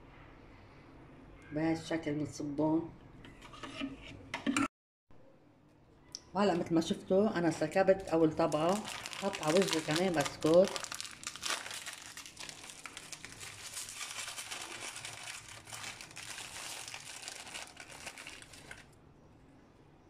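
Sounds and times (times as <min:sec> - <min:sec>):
plastic packet crinkling: 0:07.8 - 0:19.0.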